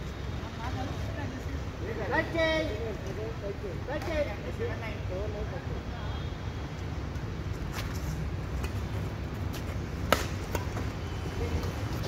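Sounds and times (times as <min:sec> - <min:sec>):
rackets hitting shuttlecock: 0:10.0 - 0:10.9.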